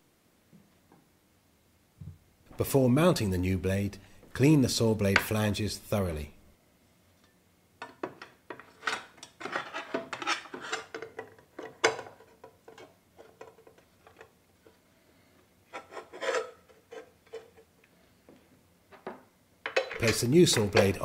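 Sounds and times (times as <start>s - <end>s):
rubbing and scraping metal by hand: 8.6s - 14.7s, 15.7s - 17.7s.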